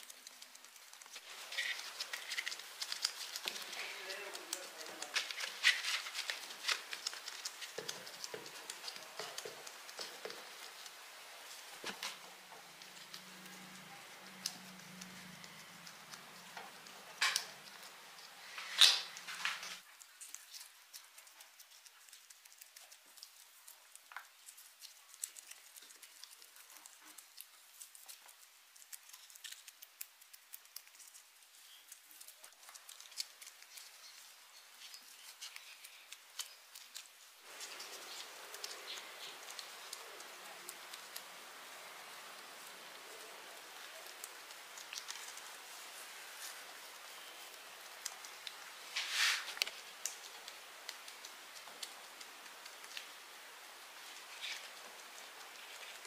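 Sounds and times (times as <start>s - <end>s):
faint low hum: 0.0s - 56.0s
steady hiss: 0.0s - 56.0s
hands working wet soil: 48.9s - 49.7s.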